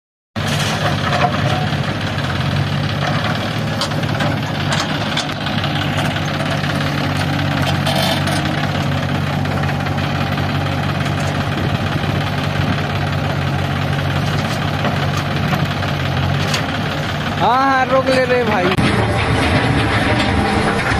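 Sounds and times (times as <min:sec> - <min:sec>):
diesel engine running: 0:00.4 - 0:20.9
metal knocks and clanks: 0:02.9 - 0:08.9, 0:18.1 - 0:20.9.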